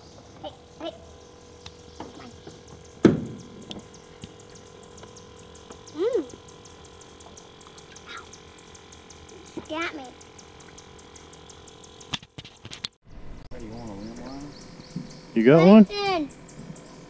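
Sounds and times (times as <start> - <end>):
river ambience: 0.0 - 12.9
faint fast ticking: 0.4 - 12.9.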